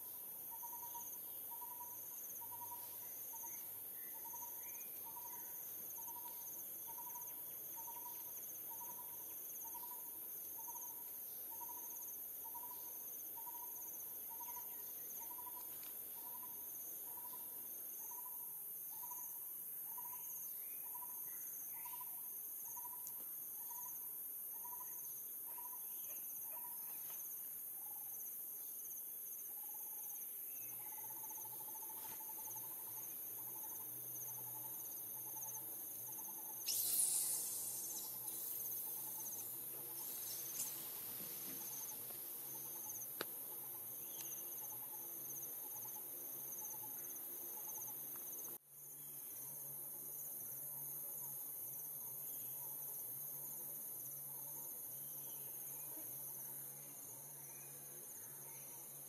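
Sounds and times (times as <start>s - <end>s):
insects droning high: 0.0s - 59.0s
insect pulsing: 28.8s - 58.8s.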